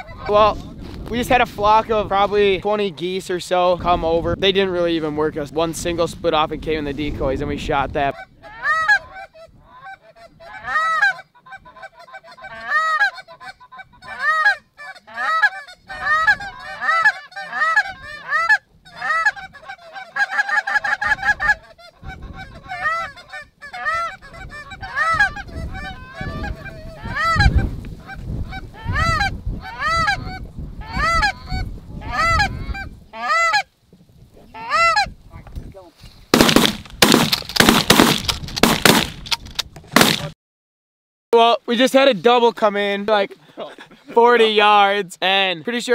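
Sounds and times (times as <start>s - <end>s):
goose honks and clucks: 8.1s - 33.7s, 34.5s - 35.2s.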